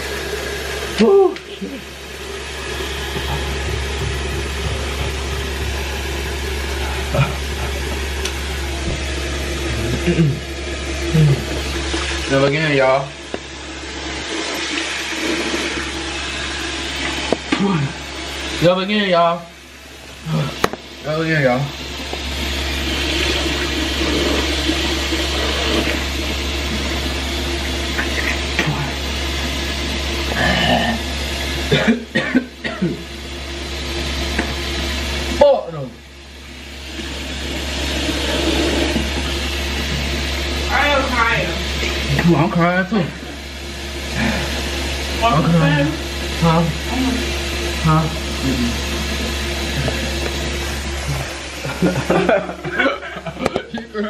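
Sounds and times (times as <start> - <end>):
man rinsing mouth: 0.0 - 18.6, 20.0 - 20.9, 21.6 - 35.4, 36.4 - 40.8, 41.5 - 42.3, 43.1 - 53.7
constant low hum: 0.0 - 34.7
tap running into sink: 3.0 - 6.4
breathy grunts: 30.3 - 31.0.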